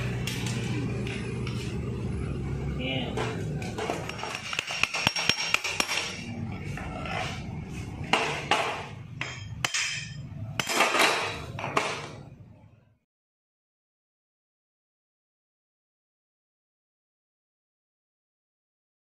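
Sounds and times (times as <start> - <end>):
parts rattling and scraping: 3.1 - 12.4.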